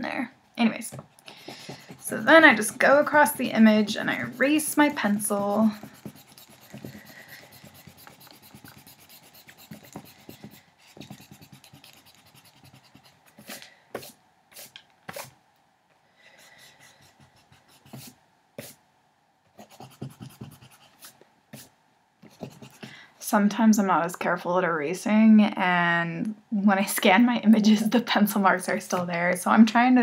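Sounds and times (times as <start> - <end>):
eraser rubbing on paper: 1.3 - 15.3, 16.4 - 18.8, 19.6 - 21.7, 22.3 - 22.8.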